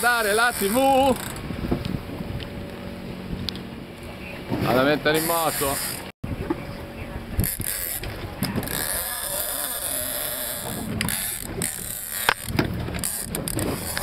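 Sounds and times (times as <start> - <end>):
fishing reel drag clicking: 0.0 - 1.4, 7.4 - 14.0.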